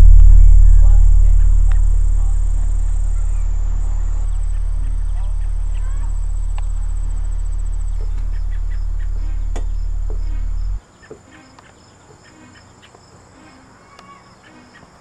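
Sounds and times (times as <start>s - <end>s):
loud low hum: 0.0s - 10.8s
insects chirping: 0.0s - 15.0s.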